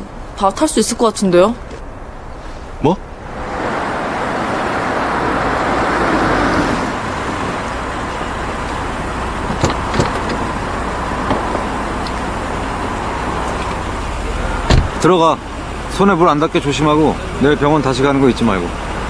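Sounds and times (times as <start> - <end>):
car driving up and stopping: 1.6 - 19.0
car door latch clicks: 9.5 - 10.4.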